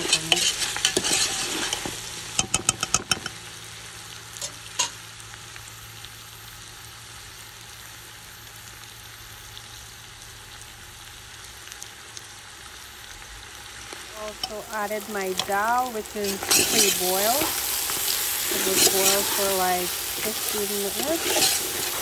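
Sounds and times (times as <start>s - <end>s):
spoon scraping a metal pot: 0.0s - 2.0s, 15.4s - 22.0s
meat sizzling: 0.0s - 22.0s.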